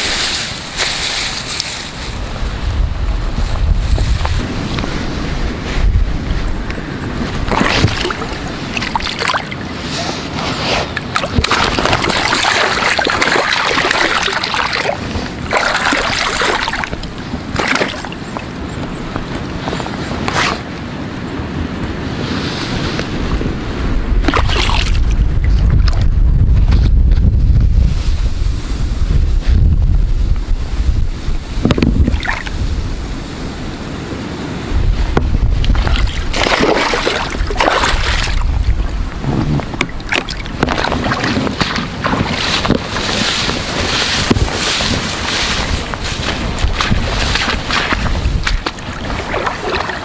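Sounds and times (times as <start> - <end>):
wind buffeting microphone: 0.0 - 50.0
water washing at shore: 4.2 - 20.7, 24.1 - 26.1, 31.3 - 50.0
fish thrashing and splashing: 7.4 - 9.6, 11.0 - 18.2, 24.2 - 26.0, 35.7 - 38.9, 39.8 - 50.0
rustling bursts: 40.9 - 48.7.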